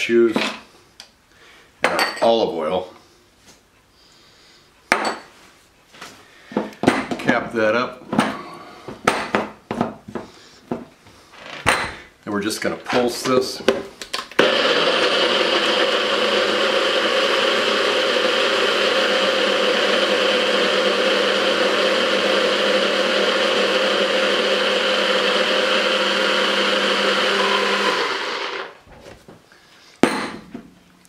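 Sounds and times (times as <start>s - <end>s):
blender running: 14.4s - 28.8s.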